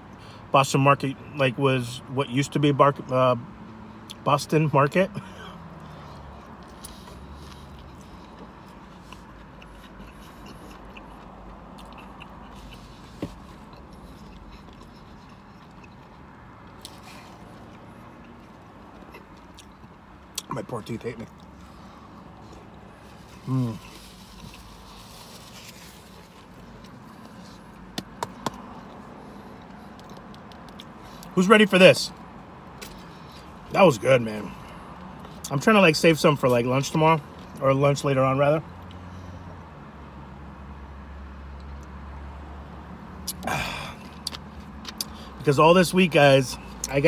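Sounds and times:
person chewing: 5.6s - 20.5s, 21.3s - 31.4s, 43.2s - 45.4s
wet mouth clicks: 9.1s - 16.2s, 43.2s - 43.5s.

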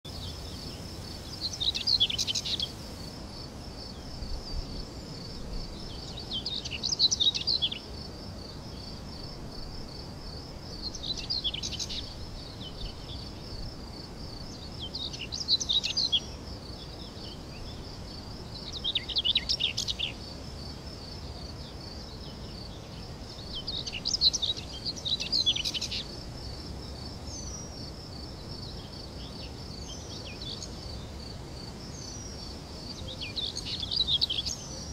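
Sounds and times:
bird chirping: 0.1s - 2.8s, 4.3s - 7.9s, 10.8s - 13.4s, 18.6s - 20.2s, 22.2s - 26.2s, 28.7s - 34.9s
insect trill: 0.1s - 34.9s.

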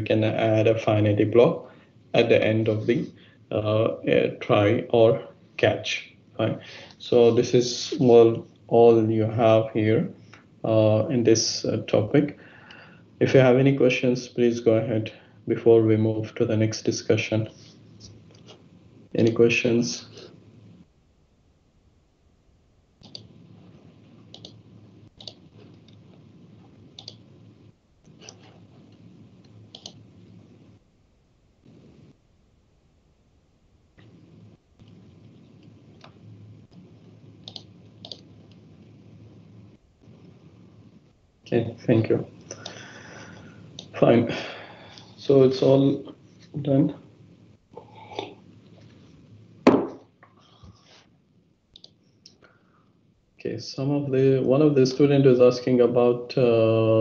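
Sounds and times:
faint indistinct sounds: 0.0s - 57.0s
faint microphone hum: 0.0s - 57.0s
computer mouse clicking: 23.0s - 23.6s, 24.2s - 27.4s, 28.0s - 30.4s, 34.0s - 38.6s, 43.4s - 43.9s, 51.7s - 52.4s.

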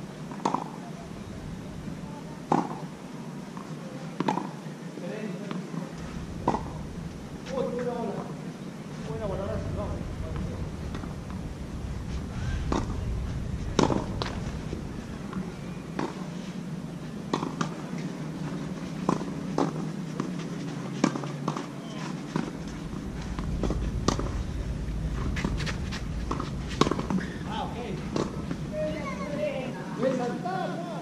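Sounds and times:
wind rumble on microphone: 1.0s - 2.5s, 5.9s - 17.3s, 22.3s - 29.5s.

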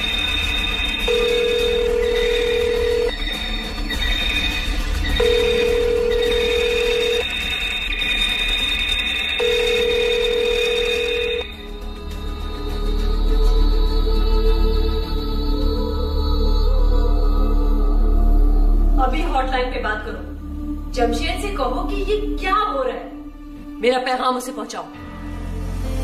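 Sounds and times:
electronic telephone ringing: 0.0s - 3.3s, 5.2s - 11.5s
soft background music: 0.0s - 26.0s.

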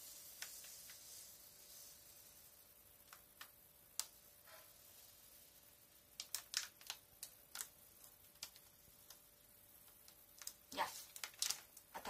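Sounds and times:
breadcrumb packet crinkling: 5.8s - 12.0s.

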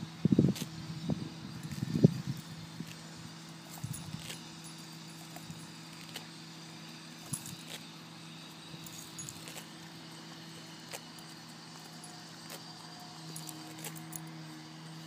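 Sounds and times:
steady low hum: 0.0s - 15.0s
dog collar jingling: 3.7s - 5.7s, 8.8s - 9.6s.

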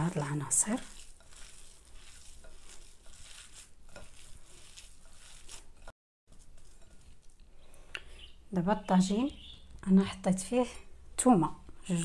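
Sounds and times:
hand kneading raw meat: 0.1s - 7.4s.

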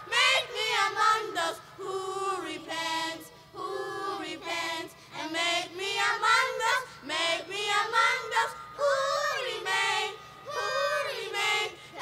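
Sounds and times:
children singing unaccompanied: 0.0s - 12.0s.

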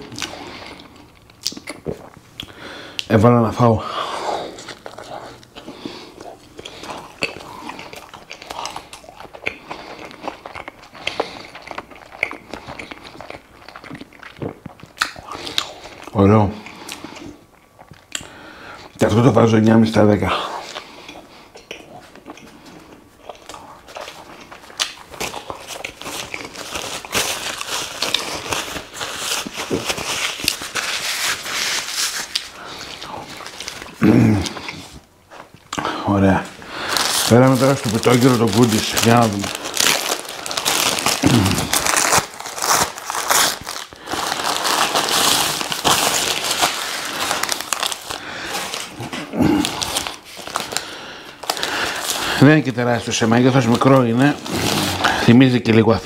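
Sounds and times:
mouth-closed chewing: 4.5s - 18.3s
paper napkin crinkling: 23.9s - 34.6s, 36.8s - 55.9s.

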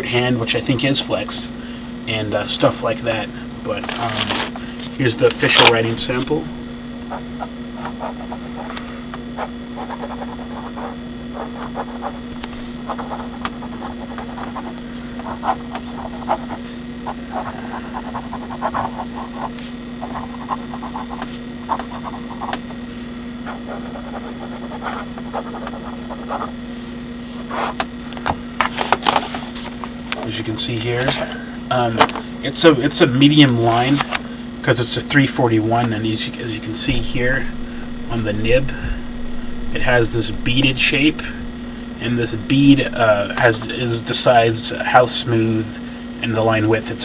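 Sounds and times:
steady low hum: 0.0s - 47.0s
pen nib scratching paper: 7.1s - 8.7s, 9.4s - 22.8s, 23.4s - 26.6s, 27.5s - 27.8s.

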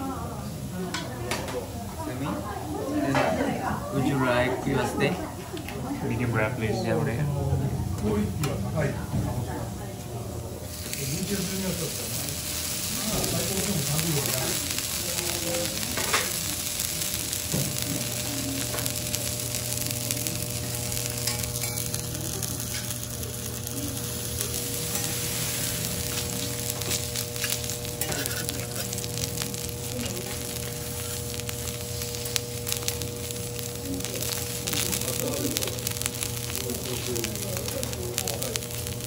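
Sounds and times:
beef sizzling on a griddle: 10.6s - 39.0s.

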